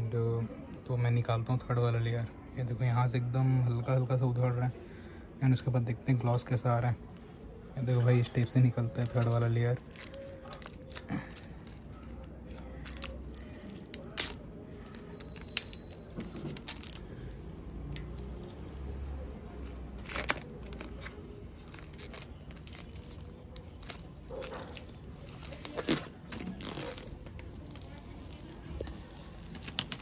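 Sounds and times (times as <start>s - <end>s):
plastic film peeling and crackling: 8.0s - 30.0s
plastic film snapping: 9.0s - 18.7s, 19.6s - 30.0s.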